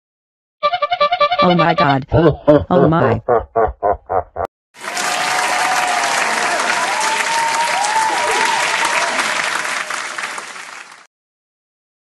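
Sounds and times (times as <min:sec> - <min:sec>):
crowd applause: 0:04.8 - 0:11.1.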